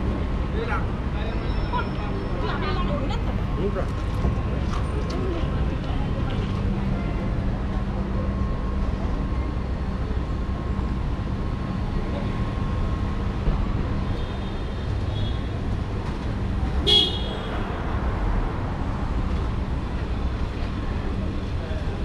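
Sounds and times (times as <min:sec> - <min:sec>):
traffic rumble: 0:00.0 - 0:22.0
car horn toot: 0:16.8 - 0:17.5.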